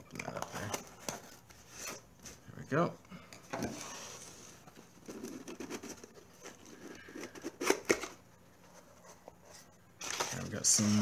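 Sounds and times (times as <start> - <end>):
cardboard scraping and rustling: 8.8 - 11.0.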